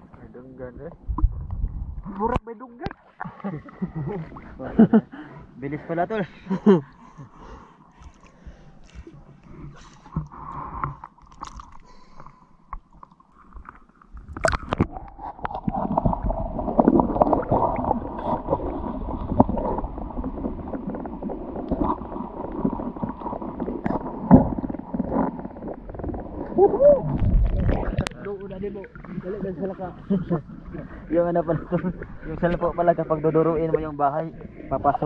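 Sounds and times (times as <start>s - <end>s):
muffled underwater rumble: 0.0s - 2.4s, 13.6s - 35.0s
water lapping and splashing: 7.4s - 35.0s.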